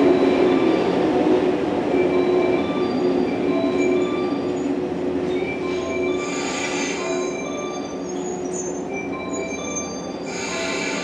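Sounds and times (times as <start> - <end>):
train brakes squealing: 2.2 - 11.0.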